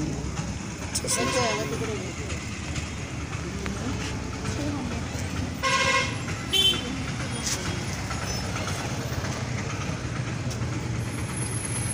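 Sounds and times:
low rumble of traffic: 0.0 - 11.9
vehicle horn toot: 5.6 - 6.8.

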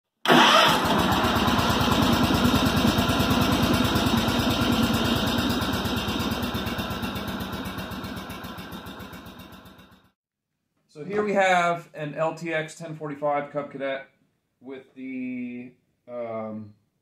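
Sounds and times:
small engine running: 0.3 - 10.1.

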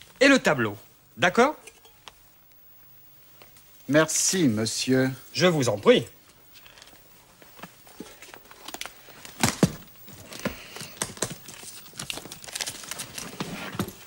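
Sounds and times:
objects being packed into a case: 6.6 - 14.0.

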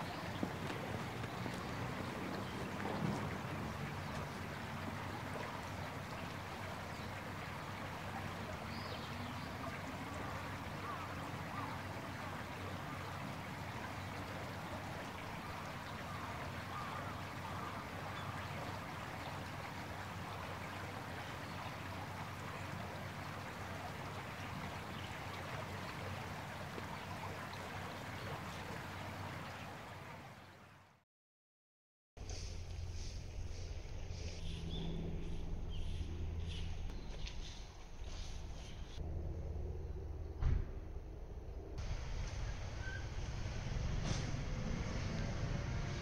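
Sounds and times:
faint low hum: 32.2 - 43.7.

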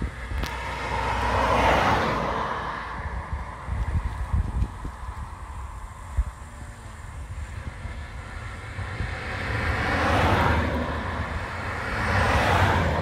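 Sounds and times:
steady low rumble: 0.0 - 13.0
vehicles passing: 0.0 - 13.0.

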